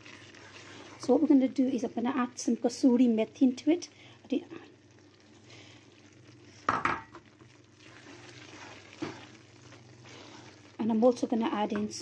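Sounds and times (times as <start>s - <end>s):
sauce sizzling in a pan: 0.0s - 12.0s
wooden spatula scraping a pan: 7.8s - 10.9s.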